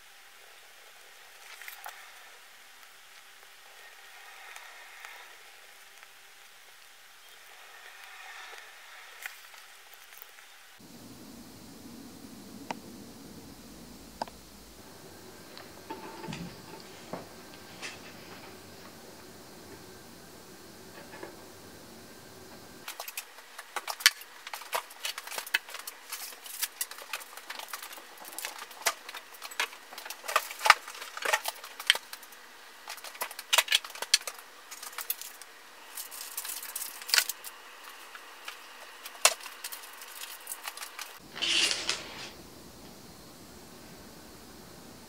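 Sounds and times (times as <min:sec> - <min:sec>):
kitchen items clicking and tapping: 0:15.5 - 0:18.6
packaging rustle: 0:22.8 - 0:42.3.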